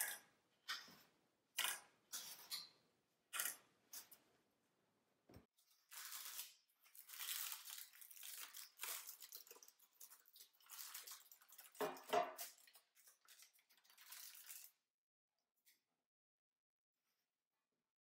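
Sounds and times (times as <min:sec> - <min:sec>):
parchment paper rustling and crinkling: 0:05.6 - 0:14.8.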